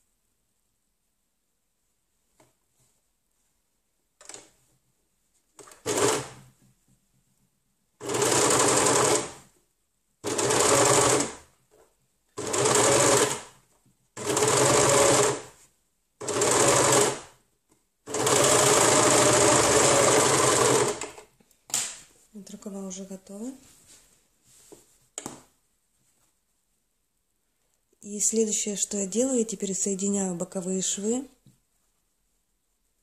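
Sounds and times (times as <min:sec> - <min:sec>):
overlocker stitching: 0:05.6 - 0:06.5, 0:08.0 - 0:09.5, 0:10.2 - 0:11.5, 0:12.4 - 0:13.6, 0:14.2 - 0:15.6, 0:16.2 - 0:17.4, 0:18.0 - 0:21.3.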